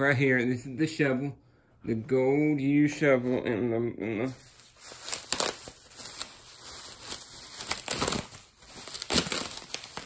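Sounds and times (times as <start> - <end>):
bubble wrap crinkling: 4.0 - 10.0.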